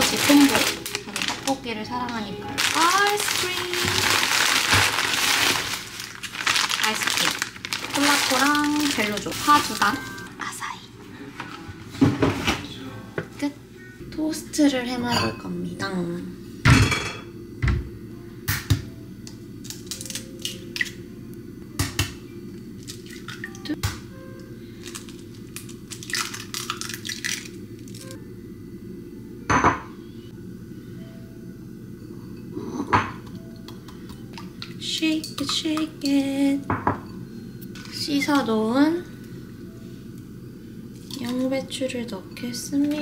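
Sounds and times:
package rustling: 0:00.0 - 0:10.2
knocks on countertop: 0:12.0 - 0:12.6, 0:17.6 - 0:17.9, 0:36.7 - 0:37.0
egg cracking over ceramic bowl: 0:24.9 - 0:28.0.

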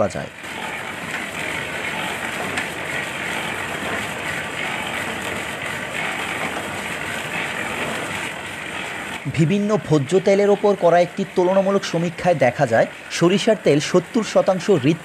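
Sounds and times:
oil mill with drive belts running: 0:00.0 - 0:15.0.

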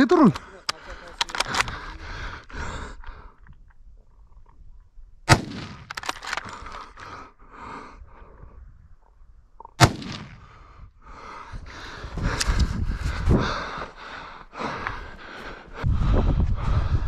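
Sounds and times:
rifle shot: 0:05.3 - 0:06.4, 0:09.8 - 0:10.6.

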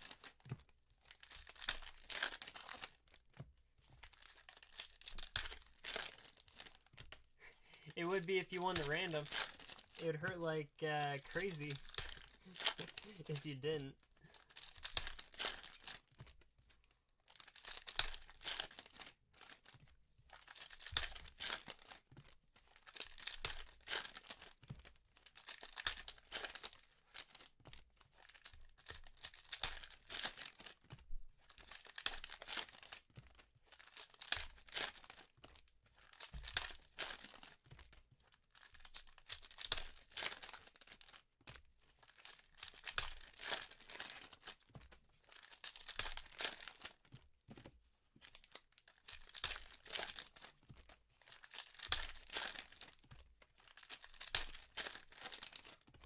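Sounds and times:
card wrappers torn and crinkled: 0:00.0 - 0:56.0
cards being handled: 0:01.3 - 0:13.9, 0:41.9 - 0:47.8.

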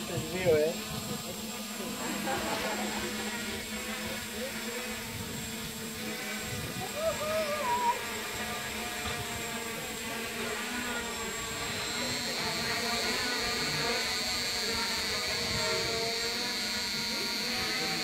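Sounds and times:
drone propellers whining: 0:00.0 - 0:18.0
higher whine: 0:06.4 - 0:18.0.

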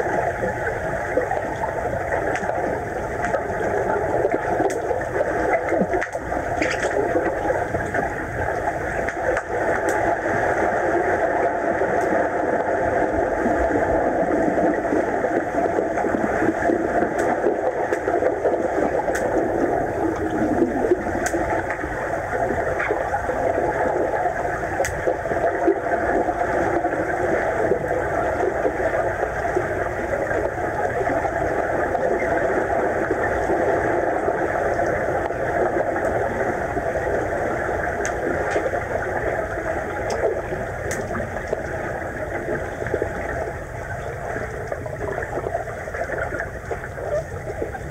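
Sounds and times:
underwater hum and hiss: 0:00.0 - 0:47.9
faint clicks: 0:02.2 - 0:02.6, 0:19.0 - 0:19.4, 0:24.8 - 0:25.1, 0:37.9 - 0:38.7, 0:40.0 - 0:47.8.

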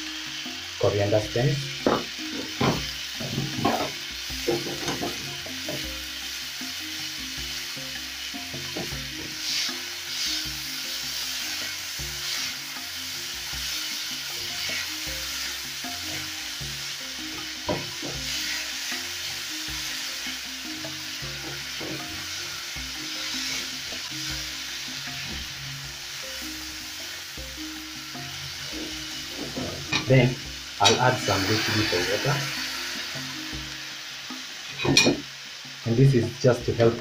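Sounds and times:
vegetables sizzling in oil: 0:00.0 - 0:37.0
spatula scraping pan: 0:08.6 - 0:12.7.

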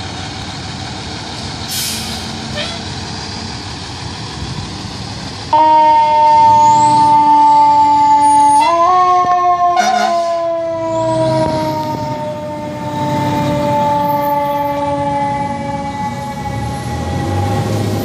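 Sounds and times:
fire engine siren: 0:05.4 - 0:18.0
loud horn blast: 0:05.6 - 0:07.5, 0:09.7 - 0:15.8.

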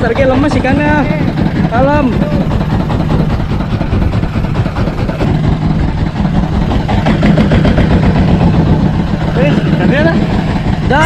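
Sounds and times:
boat engine chugging: 0:00.0 - 0:11.0.

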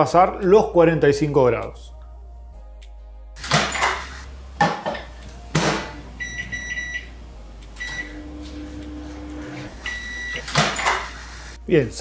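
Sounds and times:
microwave oven humming: 0:05.9 - 0:11.5
short high keypad beeps: 0:07.8 - 0:08.1.

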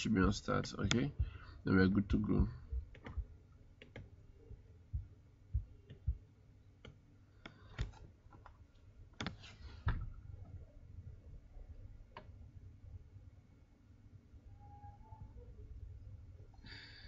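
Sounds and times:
keyboard clicks: 0:02.9 - 0:03.2, 0:03.8 - 0:04.1
computer mouse clicks: 0:03.8 - 0:04.1.

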